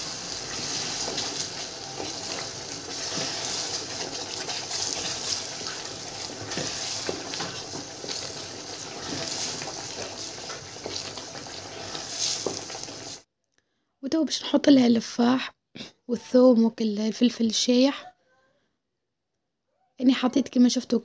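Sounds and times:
food sizzling in oil: 0.0 - 13.2
wooden spoon scraping a pot: 0.4 - 13.2.

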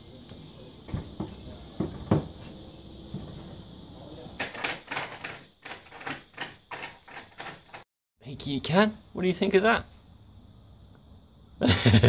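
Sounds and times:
wooden panel knocking and rattling: 0.9 - 2.4, 4.4 - 7.8.

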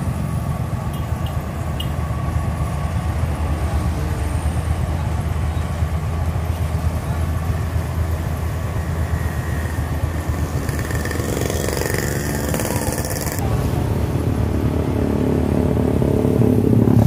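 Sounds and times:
combine harvester diesel engine: 0.0 - 17.0.

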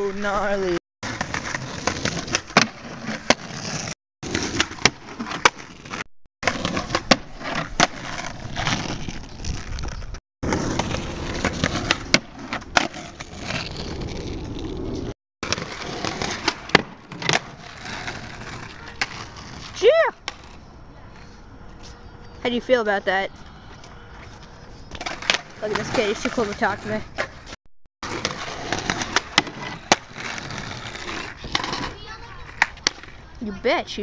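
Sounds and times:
skateboard grinding on wood: 0.0 - 22.4, 23.8 - 33.3
skateboard wheels rolling: 0.0 - 34.0
skateboard tail pops and landings: 1.1 - 3.5, 10.5 - 13.6, 15.4 - 17.5, 28.0 - 30.6.

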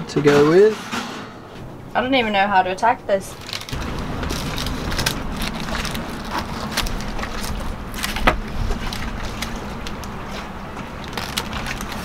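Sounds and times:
baking paper crackling: 3.2 - 12.0
low rumble: 3.6 - 12.0.

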